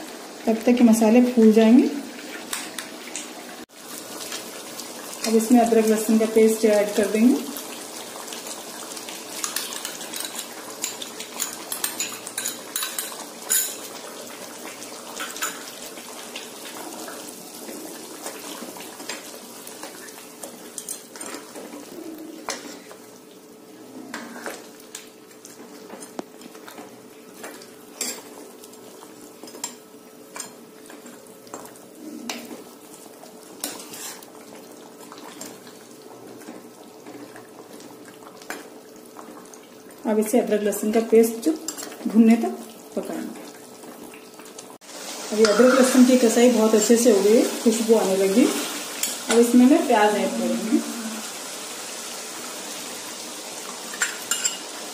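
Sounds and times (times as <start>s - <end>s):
meat sizzling in a pan: 0.0s - 54.9s.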